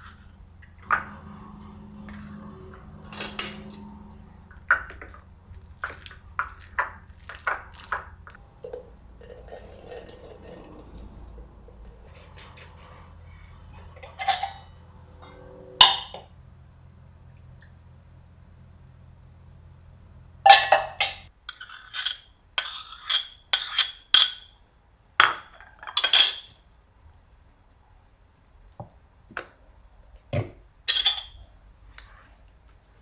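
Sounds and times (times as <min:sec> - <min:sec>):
kitchenware clinking: 0:02.0 - 0:05.2, 0:05.8 - 0:13.0, 0:13.8 - 0:16.3, 0:20.5 - 0:24.6, 0:25.2 - 0:26.6, 0:30.4 - 0:31.4
spoon scraping metal bowl: 0:09.1 - 0:13.2, 0:13.8 - 0:16.3, 0:20.6 - 0:24.4.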